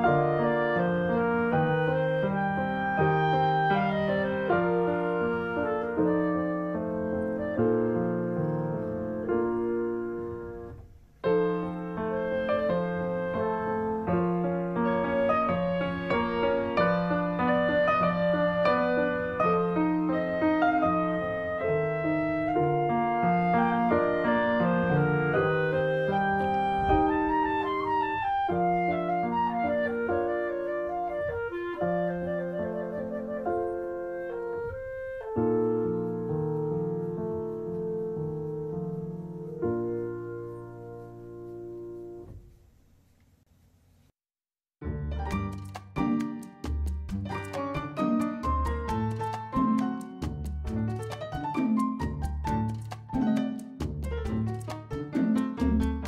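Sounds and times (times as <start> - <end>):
held woodwind melody: 0.0 - 42.0
piano music: 0.0 - 42.5, 44.8 - 56.0.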